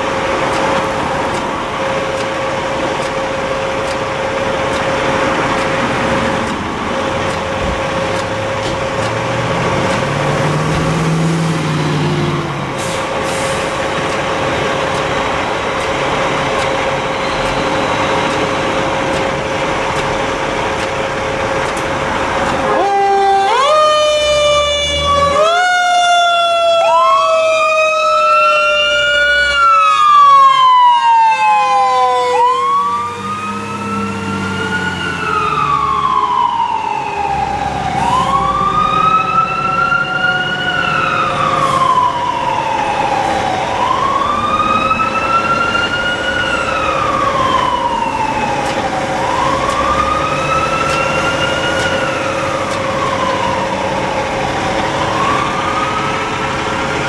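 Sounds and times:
mechanical siren winding down: 0.0 - 57.0
electronic siren wailing: 22.3 - 57.0.

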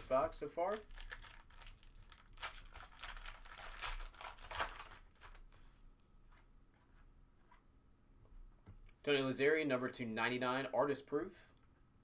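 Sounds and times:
foil wrapper crinkling and tearing: 0.6 - 5.6.

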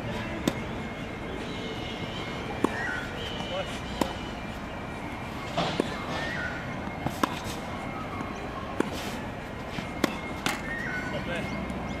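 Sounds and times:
racket hitting tennis ball: 0.2 - 0.8, 2.5 - 4.5, 5.5 - 10.8
tennis ball bouncing on court: 0.4 - 0.7, 2.6 - 4.2, 6.7 - 7.6, 9.8 - 10.8.

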